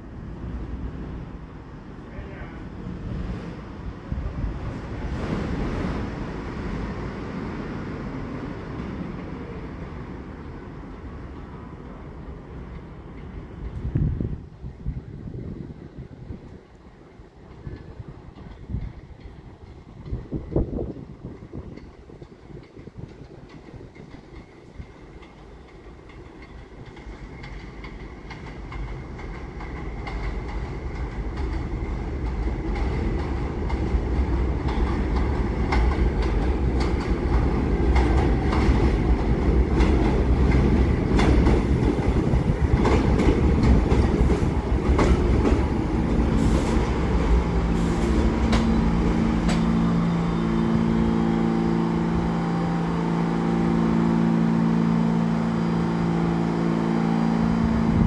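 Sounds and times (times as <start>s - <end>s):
subway train rumbling: 0.0s - 58.0s
wheels clattering over rail joints: 17.5s - 51.6s.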